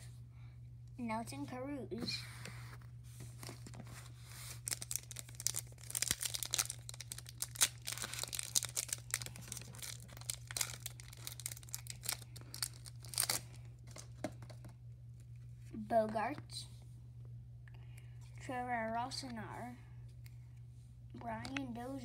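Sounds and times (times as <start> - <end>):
card pack wrapper tearing and crinkling: 4.4 - 14.5.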